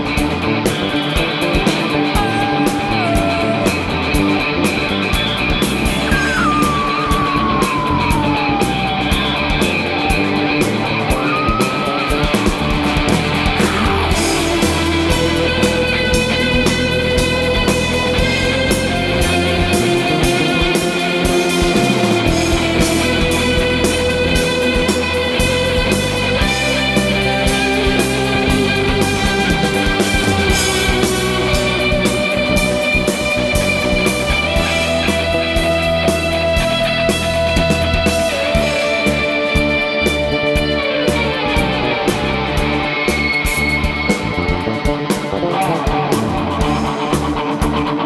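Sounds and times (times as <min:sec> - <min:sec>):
live rock band playing: 0:00.0 - 0:48.0
guitar lead sliding down: 0:01.6 - 0:24.4.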